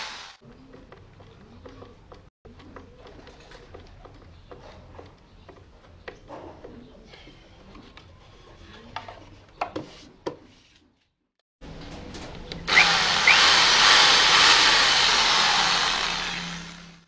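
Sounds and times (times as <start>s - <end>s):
electric drill drilling into wood: 12.7s - 17.0s.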